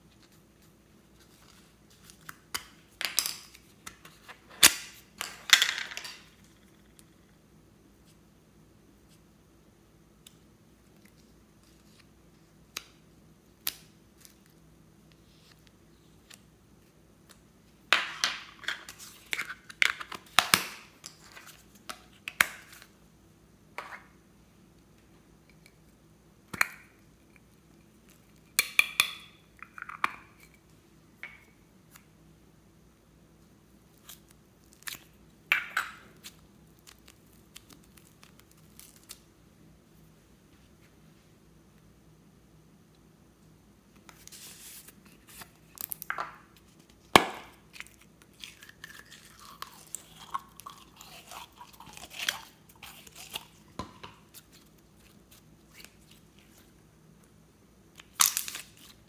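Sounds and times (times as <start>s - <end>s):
spoon scraping clay: 47.7s - 56.6s.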